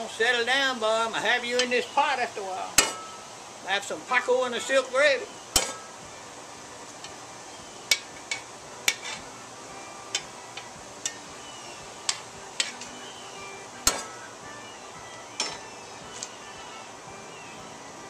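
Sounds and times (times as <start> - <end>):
metal spoon scraping metal pot: 7.9 - 9.3.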